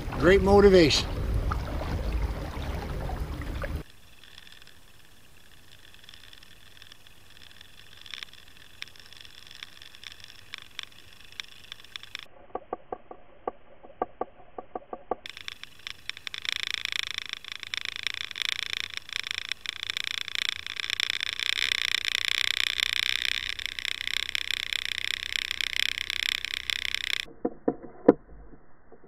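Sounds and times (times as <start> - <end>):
wind and water noise: 0.0 - 14.0
underwater clicks and ticks: 3.6 - 29.0.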